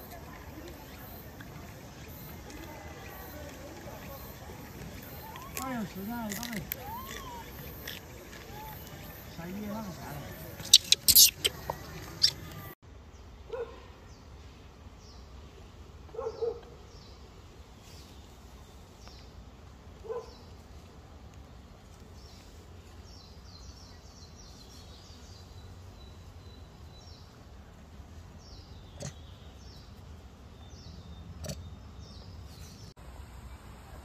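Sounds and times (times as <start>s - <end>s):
short squeaks: 10.6s - 12.7s.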